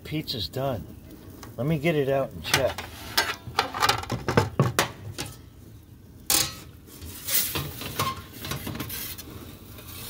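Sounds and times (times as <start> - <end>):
peel scraping into oven: 2.5 - 4.0, 6.4 - 10.0.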